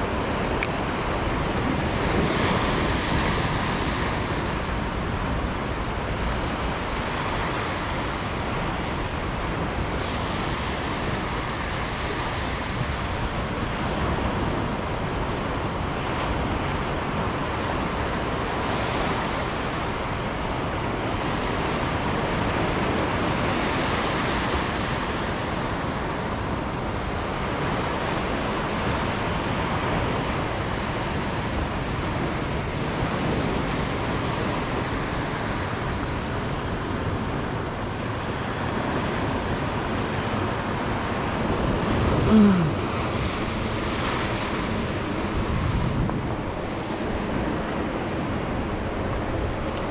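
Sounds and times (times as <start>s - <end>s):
surf waves washing on sand: 0.0s - 49.9s
wind buffeting microphone: 0.0s - 49.9s.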